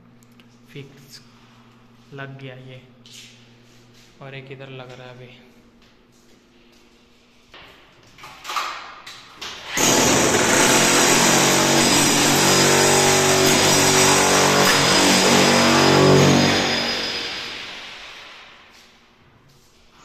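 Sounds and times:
electric power tool running: 0:09.7 - 0:18.2.

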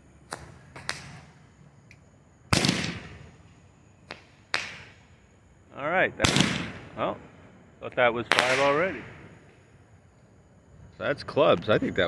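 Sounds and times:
firework bang: 0:02.5 - 0:03.4, 0:06.2 - 0:07.1, 0:08.3 - 0:09.6.

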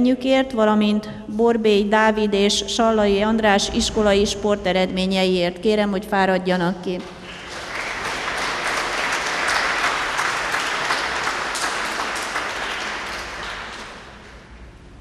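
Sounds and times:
audience applauding: 0:07.0 - 0:14.7.

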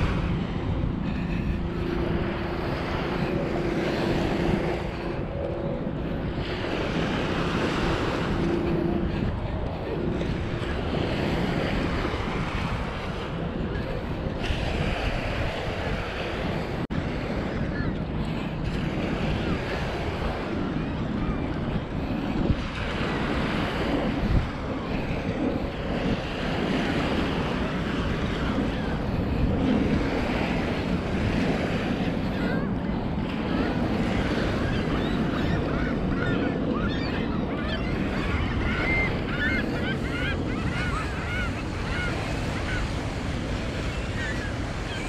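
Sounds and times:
waves washing on beach: 0:00.0 - 0:45.0
wind buffeting microphone: 0:00.0 - 0:45.0
birds calling: 0:33.4 - 0:45.0.

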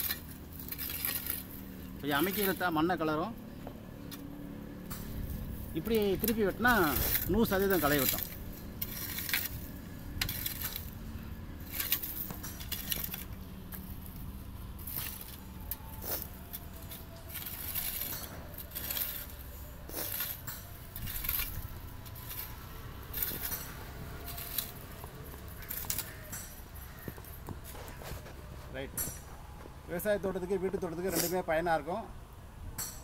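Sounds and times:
hand weeder scraping soil: 0:00.0 - 0:03.0, 0:05.3 - 0:28.3.

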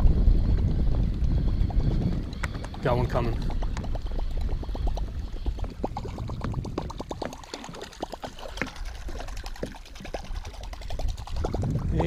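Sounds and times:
steady low rumble: 0:00.0 - 0:07.4
water splashing and gurgling: 0:00.0 - 0:12.0.

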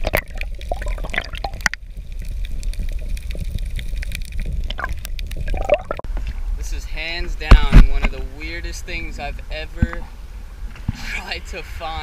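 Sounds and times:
underwater clicks and crackles: 0:00.0 - 0:06.4
water sloshing and gurgling: 0:00.0 - 0:06.5.

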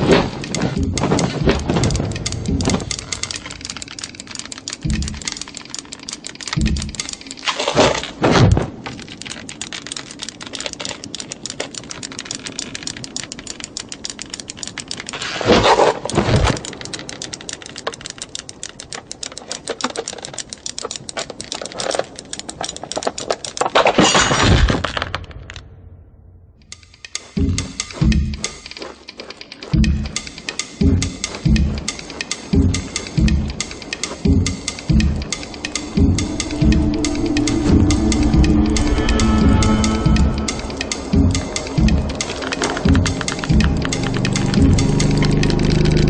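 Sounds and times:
knitting needles clicking: 0:00.0 - 0:24.0, 0:26.6 - 0:46.0
rushing swell with low thump: 0:34.9 - 0:43.9.

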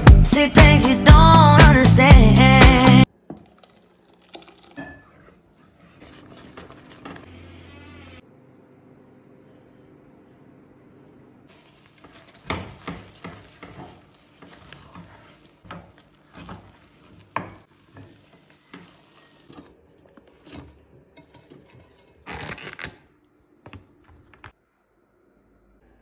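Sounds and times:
spatula scraping and knocking pot: 0:04.8 - 0:07.3, 0:11.5 - 0:22.3.

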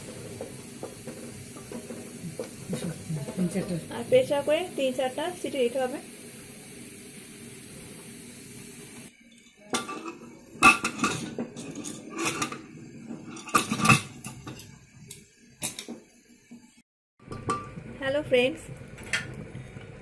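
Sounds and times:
pressure cooker lid clanking: 0:09.7 - 0:12.6.

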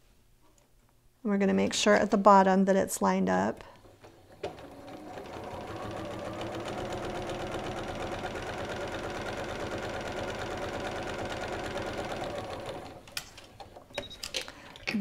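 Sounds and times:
sewing machine stitching: 0:03.8 - 0:13.7.

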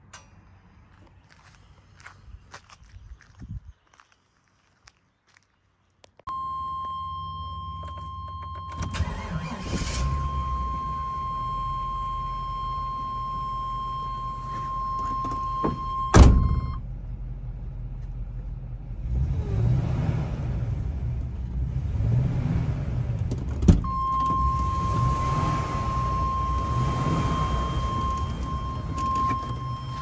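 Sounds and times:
bus engine idling: 0:06.4 - 0:19.0, 0:23.9 - 0:30.0
loud thump: 0:15.6 - 0:16.8
high-pitched warning tone: 0:23.9 - 0:30.0.

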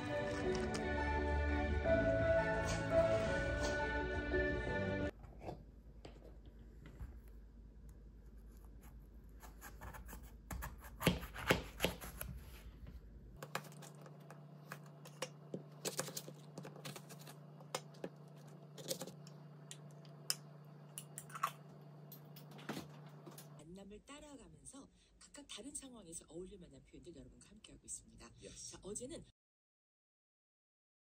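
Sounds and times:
knife slicing apple on cutting board: 0:08.6 - 0:12.6.

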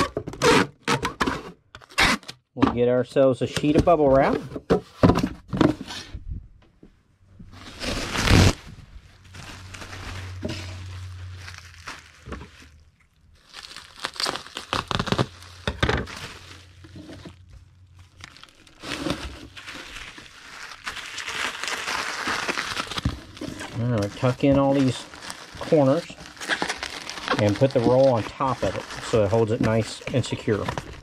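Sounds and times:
bubble wrap crinkling: 0:07.5 - 0:31.0
bubble wrap ripping: 0:07.6 - 0:31.0.

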